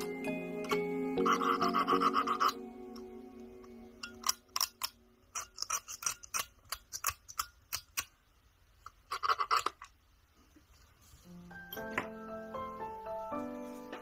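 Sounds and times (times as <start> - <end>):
small plastic parts clicking: 4.0 - 8.2.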